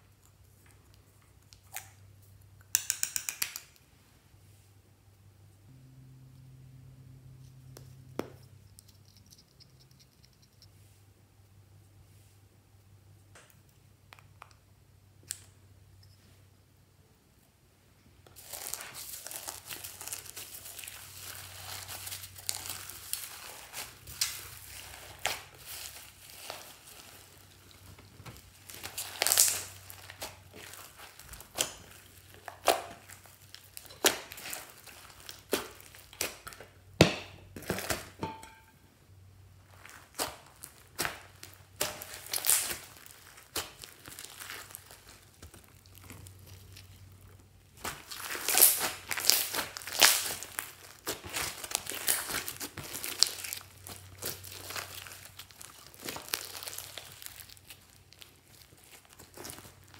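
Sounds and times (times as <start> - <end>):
crinkly crackle of foam beads: 18.3 - 36.8, 39.6 - 59.9.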